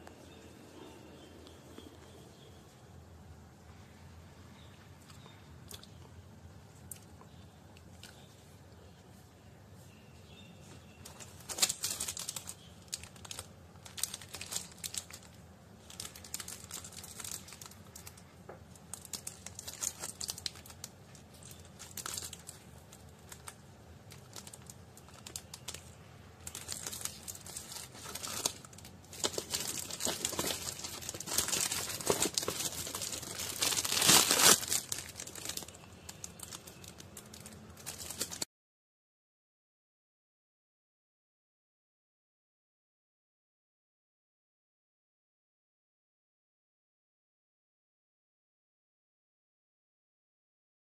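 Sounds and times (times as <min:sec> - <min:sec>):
clicks and crackles: 0:11.0 - 0:38.5
plastic bags crinkling: 0:11.0 - 0:38.5.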